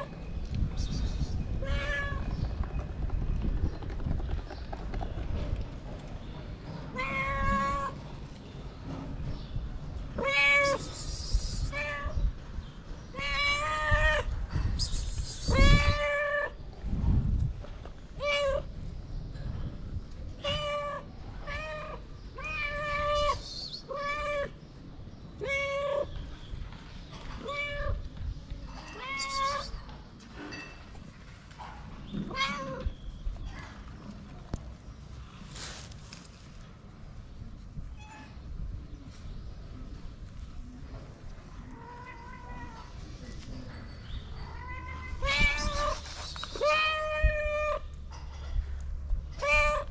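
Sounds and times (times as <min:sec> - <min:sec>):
cats meowing: 0:01.6 - 0:02.3, 0:06.9 - 0:08.0, 0:10.2 - 0:11.0, 0:13.1 - 0:14.4, 0:15.5 - 0:16.6, 0:20.4 - 0:24.6, 0:25.4 - 0:26.1, 0:28.8 - 0:29.8, 0:32.2 - 0:32.9, 0:41.6 - 0:43.0, 0:44.3 - 0:48.0, 0:49.3 - 0:49.9.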